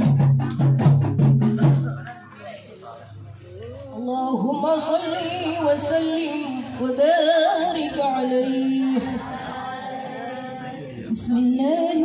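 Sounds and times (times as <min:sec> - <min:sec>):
women singing devotional song: 0:04.0 - 0:12.0.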